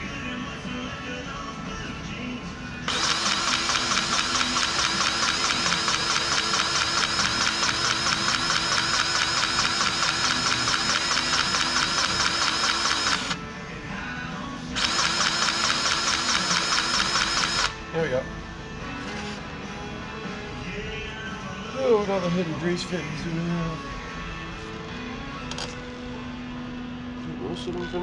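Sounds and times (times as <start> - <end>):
grease gun motor pulsing: 2.9 - 13.4, 14.8 - 17.8.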